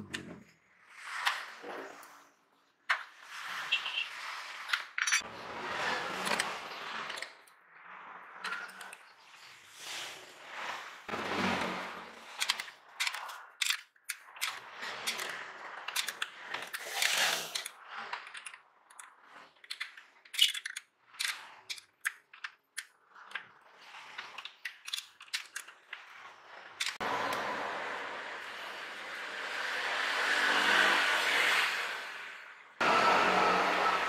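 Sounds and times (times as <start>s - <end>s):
plastic and metal parts clicking: 12.3s - 27.0s.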